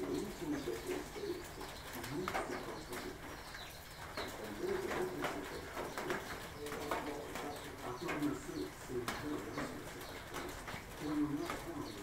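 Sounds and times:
dove cooing: 0:00.0 - 0:12.0.

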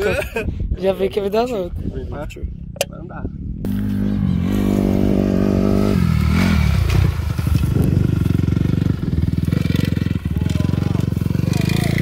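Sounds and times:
motocross bike engine: 0:03.6 - 0:12.0.

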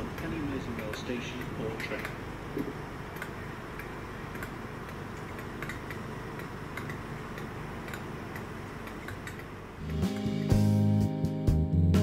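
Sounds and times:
regular ticking: 0:00.0 - 0:10.7
steady low hum: 0:00.0 - 0:11.2
background music with guitar: 0:09.8 - 0:12.0.

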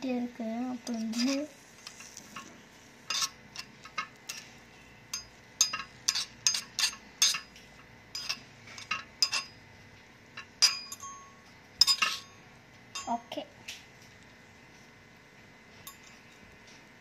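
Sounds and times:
metal spoon clinking in pan: 0:03.1 - 0:04.4, 0:05.1 - 0:07.5, 0:08.2 - 0:09.6, 0:10.4 - 0:13.3, 0:15.9 - 0:16.5.

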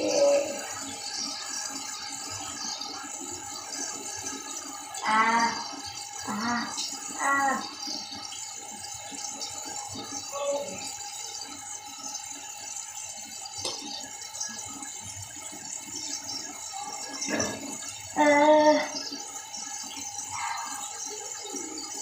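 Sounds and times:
running tap hiss: 0:00.0 - 0:22.0
toothbrush scrubbing teeth: 0:15.5 - 0:22.0.

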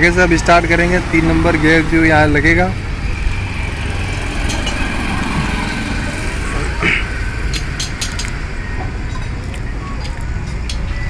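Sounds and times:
engine idling: 0:00.0 - 0:11.0
metal parts clicking: 0:07.5 - 0:08.4.

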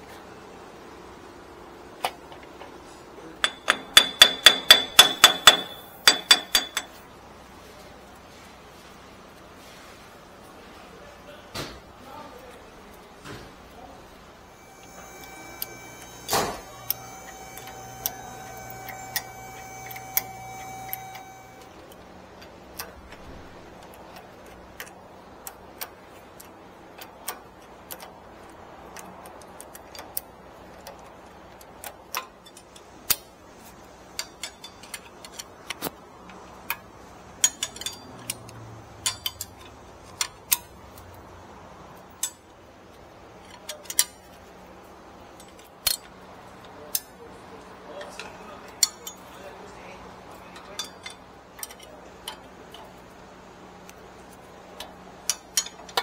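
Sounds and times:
hand tools clicking on metal: 0:03.4 - 0:07.0, 0:14.7 - 0:23.2, 0:23.8 - 0:41.2, 0:42.0 - 0:44.5, 0:45.2 - 0:47.2, 0:47.9 - 0:49.4, 0:50.3 - 0:53.2, 0:53.8 - 0:56.0
steady high hum: 0:13.7 - 0:31.8.

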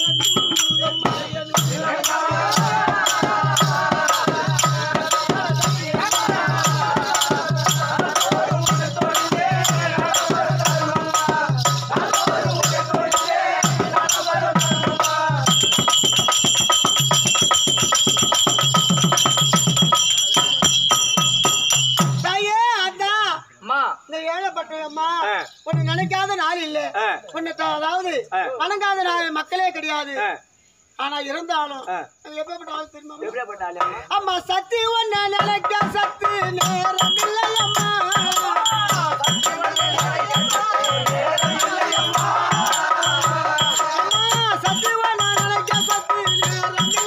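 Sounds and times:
drum beating: 0:00.0 - 0:22.4, 0:35.3 - 0:47.0
jingling percussion: 0:00.0 - 0:23.6, 0:25.0 - 0:28.0, 0:32.1 - 0:47.0.

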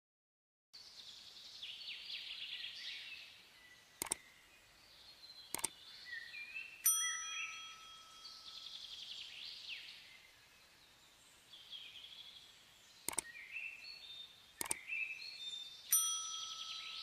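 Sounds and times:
chirpy blips: 0:04.0 - 0:04.2, 0:05.5 - 0:05.8, 0:13.1 - 0:13.3, 0:14.6 - 0:15.0
mouse click: 0:04.0 - 0:04.2, 0:05.5 - 0:05.8, 0:13.0 - 0:13.3, 0:14.6 - 0:14.9
ringing ding: 0:06.8 - 0:08.6, 0:15.9 - 0:17.0.

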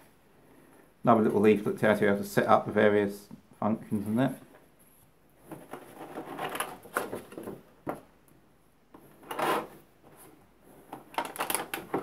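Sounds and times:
plastic packaging crinkling: 0:11.1 - 0:12.0.

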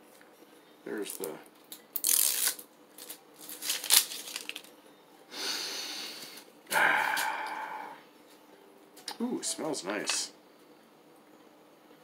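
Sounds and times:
person sniffing: 0:05.3 - 0:08.0.

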